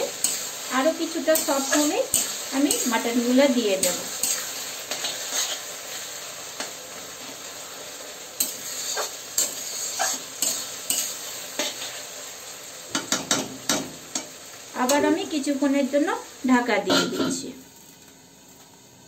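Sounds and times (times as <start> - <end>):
onions sizzling in oil: 0.0 - 19.0
metal spatula scraping pan: 1.4 - 2.9, 4.1 - 5.7, 8.4 - 11.8.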